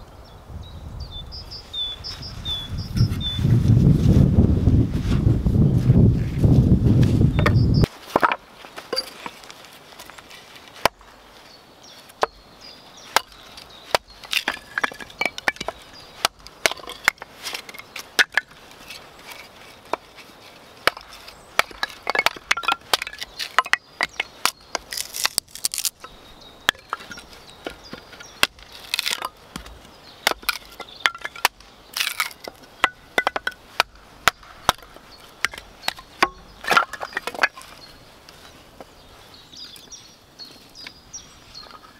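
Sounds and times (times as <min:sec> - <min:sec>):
wood splitting cracks: 0:08.1 - 0:11.0, 0:13.1 - 0:37.8
hatchet chopping kindling: 0:13.1 - 0:37.8.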